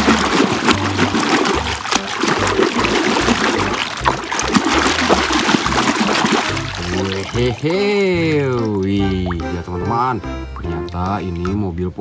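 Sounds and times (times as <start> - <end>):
hand squelching in wet material: 0.0 - 9.5.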